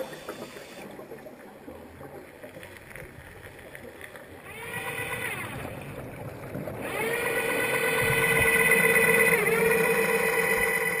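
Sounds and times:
underwater scooter motor whining: 0.0s - 1.4s, 4.1s - 11.0s.

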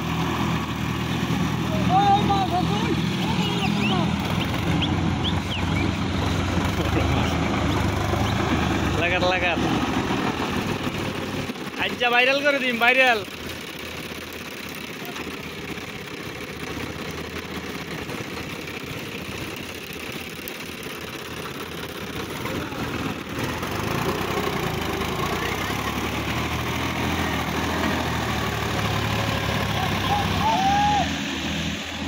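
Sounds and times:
tractor diesel engine: 0.0s - 32.0s.

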